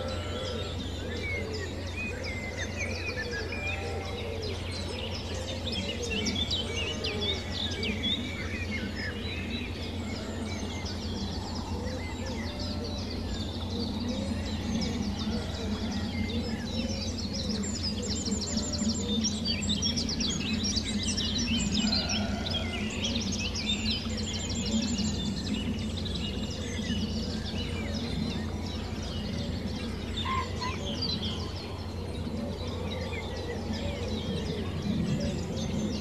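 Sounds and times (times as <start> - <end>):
birds chirping and trilling: 0.0 - 36.0.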